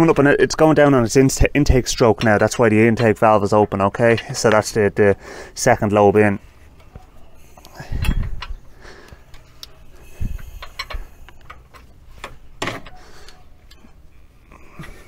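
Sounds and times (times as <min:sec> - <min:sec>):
wrench and engine clicks and knocks: 0:10.3 - 0:13.9.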